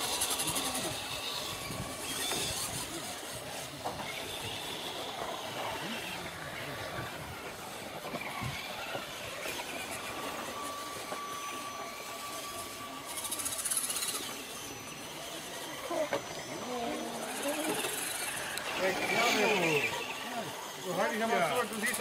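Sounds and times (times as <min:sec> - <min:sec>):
toy car electric motor whining: 0:00.0 - 0:22.0.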